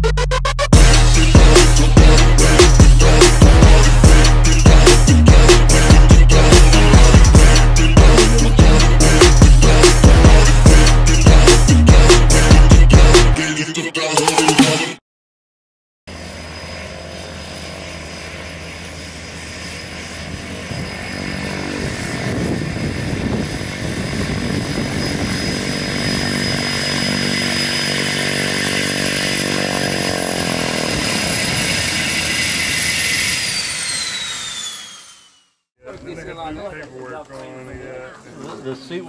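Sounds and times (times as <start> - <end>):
propeller drone: 0.8 - 12.9, 16.1 - 35.6
turbine engine whine: 16.1 - 35.7.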